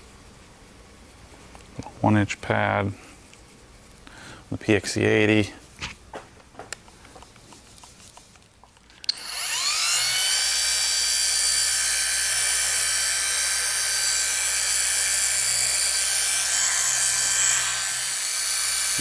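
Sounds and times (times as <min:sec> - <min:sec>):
polisher motor whining: 0:09.0 - 0:19.0.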